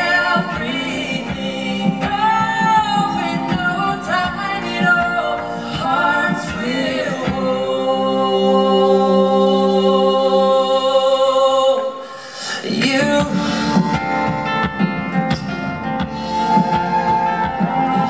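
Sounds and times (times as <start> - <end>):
live band playing: 0.0 - 9.2, 12.8 - 18.0
voices singing in harmony: 0.0 - 14.0.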